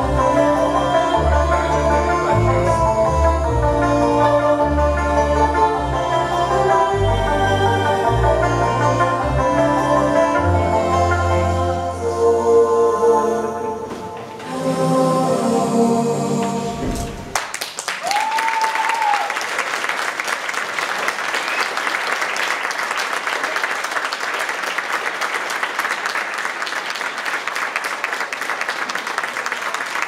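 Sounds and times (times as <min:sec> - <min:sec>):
music: 0:00.0 - 0:17.4
audience clapping: 0:17.0 - 0:30.0.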